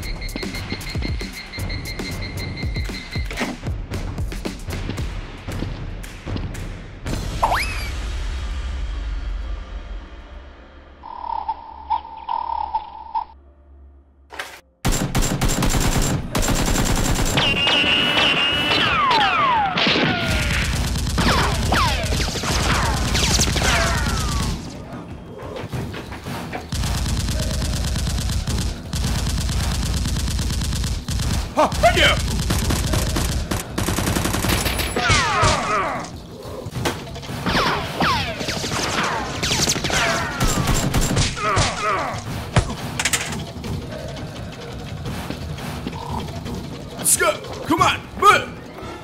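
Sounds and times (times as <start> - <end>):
automatic gunfire: 14.8 - 19.0, 19.8 - 24.6, 26.7 - 35.4.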